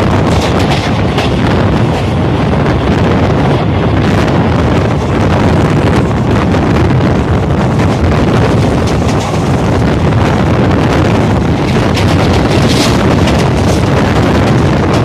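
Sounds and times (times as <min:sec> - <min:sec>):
train coach rumbling: 0:00.0 - 0:15.0
wind buffeting microphone: 0:00.0 - 0:15.0.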